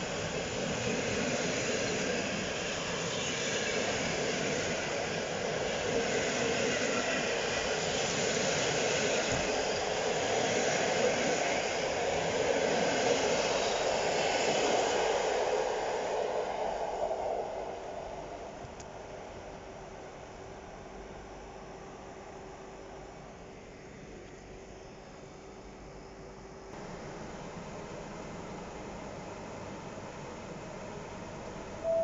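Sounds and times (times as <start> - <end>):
train wheels rumbling on rail: 0.0 - 19.6.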